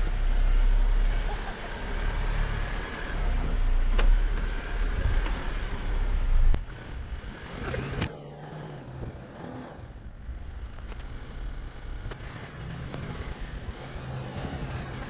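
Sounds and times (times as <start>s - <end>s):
engine and running gear rumbling: 0.0s - 15.0s.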